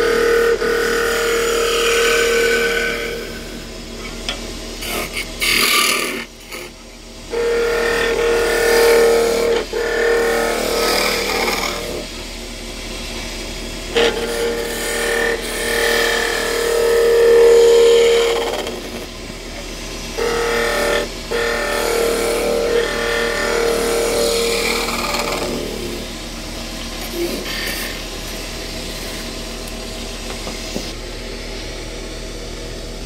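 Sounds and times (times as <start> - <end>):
wood lathe running: 0.0 - 3.8, 7.3 - 12.2, 13.9 - 26.2
chisel cutting wood whine: 0.0 - 12.3, 13.9 - 31.0.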